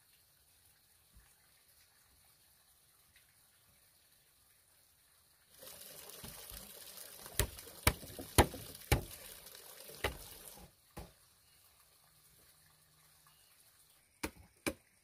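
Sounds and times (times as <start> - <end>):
bamboo knocking on bamboo: 7.4 - 9.2, 10.0 - 10.2.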